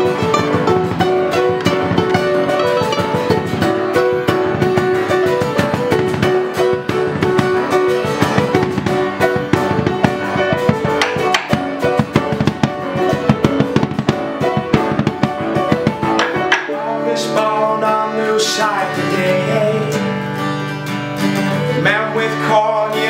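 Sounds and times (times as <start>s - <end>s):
quick drum hits: 0.0s - 16.8s
strummed acoustic guitar: 0.0s - 23.0s
upright piano: 0.0s - 23.0s.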